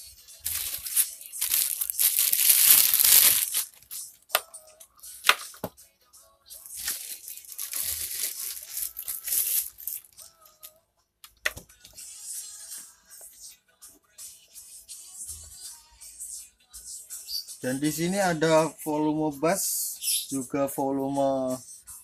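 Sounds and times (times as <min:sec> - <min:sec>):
plastic wrap crinkling: 0:00.4 - 0:04.0, 0:06.7 - 0:10.2.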